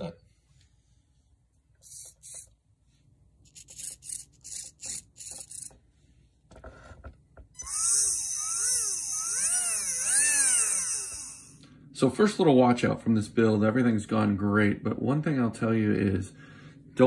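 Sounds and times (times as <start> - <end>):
electric motor spinning up: 1.8 - 2.5, 3.5 - 5.8, 7.6 - 11.6
servo whirring bursts: 7.6 - 11.6.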